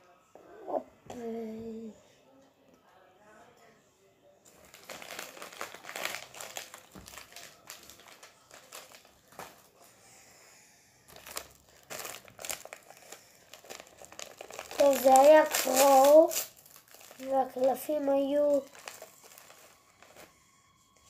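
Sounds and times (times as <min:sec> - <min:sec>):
foil pack crinkling: 0:04.5 - 0:09.8, 0:11.1 - 0:20.3.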